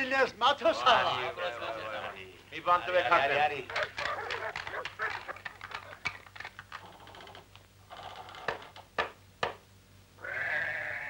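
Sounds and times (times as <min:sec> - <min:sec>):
sheep bleating: 0:10.2 - 0:11.0.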